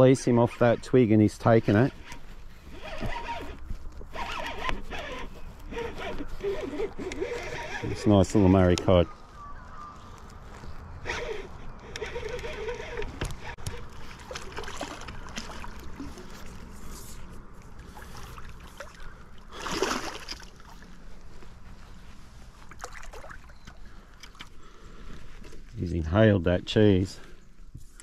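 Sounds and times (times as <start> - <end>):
fish splashing at water surface: 14.2 - 16.3, 17.8 - 20.7.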